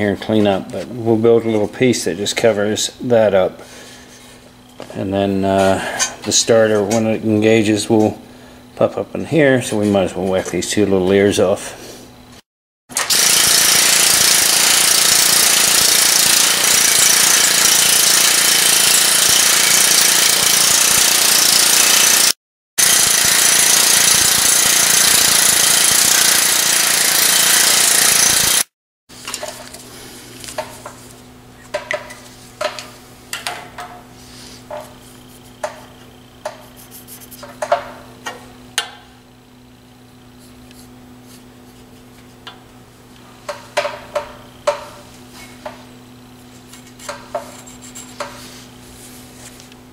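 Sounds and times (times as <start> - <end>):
power grinder grinding metal: 13.0 - 28.7
marker scratching on aluminum: 36.4 - 37.6.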